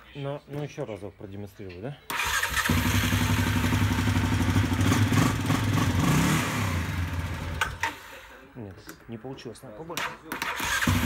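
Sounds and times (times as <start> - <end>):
quad bike engine running: 2.6 - 7.8.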